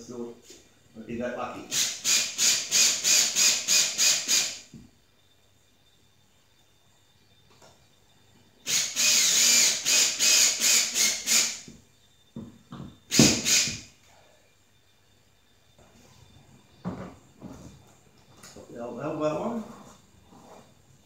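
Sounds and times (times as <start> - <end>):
cordless drill whining: 1.7 - 4.6, 8.7 - 11.7, 13.1 - 13.8.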